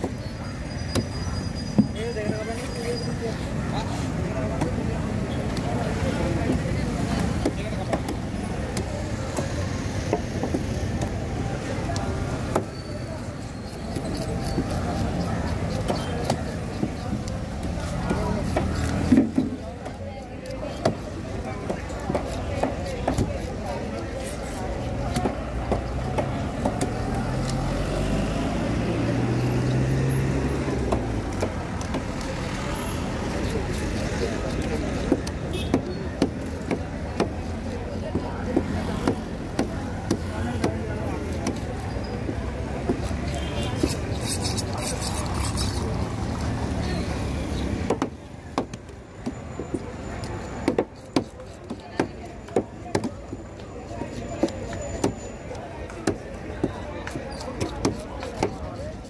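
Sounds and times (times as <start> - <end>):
cleaver chopping on wooden board: 6.4 - 12.7, 13.9 - 20.0, 20.7 - 28.2, 29.2 - 32.5, 33.2 - 46.8, 47.6 - 49.9, 50.5 - 53.4, 55.9 - 58.7.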